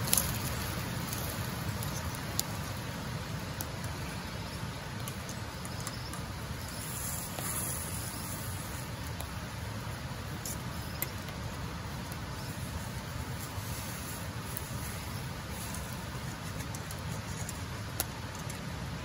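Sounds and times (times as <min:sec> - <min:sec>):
toast sizzling in a frying pan: 0:00.0 - 0:09.6.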